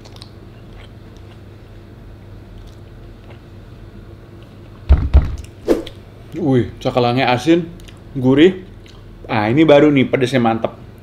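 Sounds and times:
person chewing food: 0:00.0 - 0:03.7, 0:08.7 - 0:09.1
steady low hum: 0:00.0 - 0:11.0.

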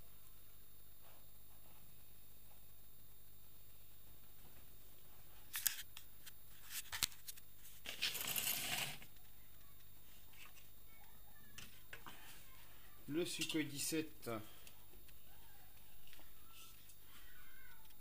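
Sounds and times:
low steady hiss: 0:00.0 - 0:18.0
rustling: 0:04.5 - 0:09.2.

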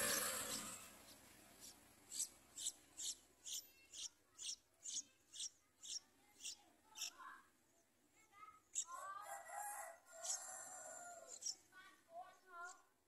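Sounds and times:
nestlings begging peeps: 0:00.0 - 0:07.3, 0:08.6 - 0:09.1, 0:09.7 - 0:11.7.

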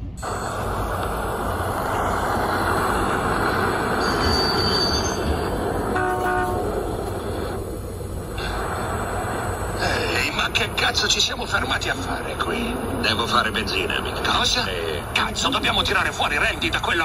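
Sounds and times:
car engine rumbling: 0:00.0 - 0:17.0
short horn-like tone: 0:05.9 - 0:06.7.

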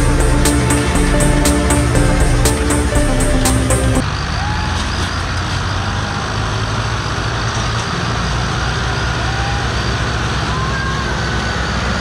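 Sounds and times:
electronic music: 0:00.0 - 0:04.0
diesel tractors straining: 0:00.0 - 0:12.0.

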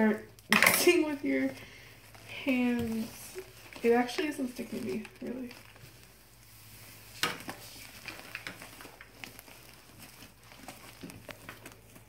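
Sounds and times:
slime squishing and popping: 0:07.1 - 0:12.0.

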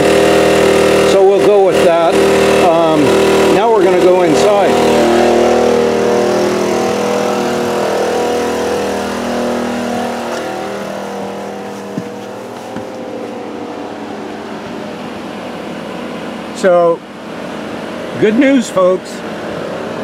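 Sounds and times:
portable generator running: 0:00.0 - 0:20.0
light knocks: 0:11.8 - 0:13.0.

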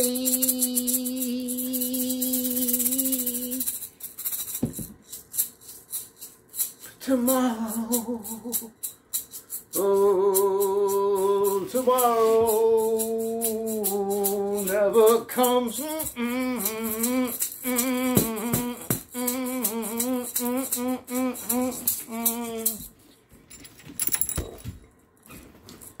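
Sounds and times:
man singing: 0:00.0 - 0:03.7, 0:06.9 - 0:08.7, 0:09.7 - 0:22.8
maraca rattling: 0:00.0 - 0:23.1.

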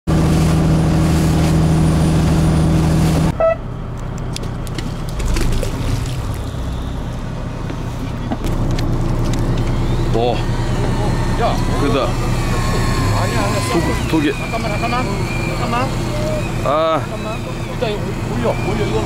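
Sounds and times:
low rumble: 0:00.1 - 0:13.4
outboard motor running: 0:00.1 - 0:19.0
short beep: 0:03.4 - 0:03.7.

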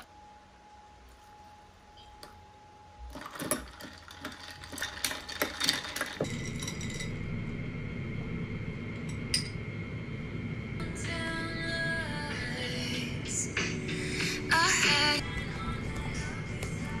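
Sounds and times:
household items clinking: 0:03.1 - 0:07.1
music: 0:10.8 - 0:17.0.

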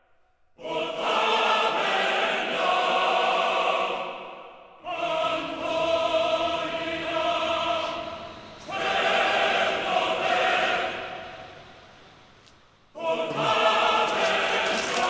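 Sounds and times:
choir singing sustained chords: 0:00.0 - 0:15.0.

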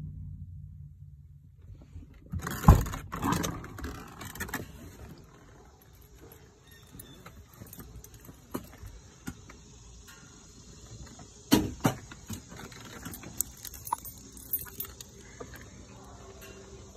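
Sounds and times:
faint insect chirring: 0:05.2 - 0:16.9.

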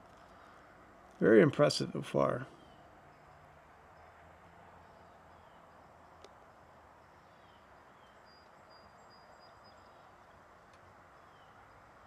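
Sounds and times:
distant bird chirps: 0:02.4 - 0:12.0.

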